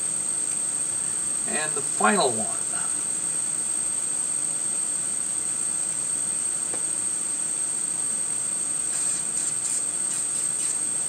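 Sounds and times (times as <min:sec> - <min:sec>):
low hiss: 0:00.0 - 0:03.7
high-pitched electronic whine: 0:01.0 - 0:11.0.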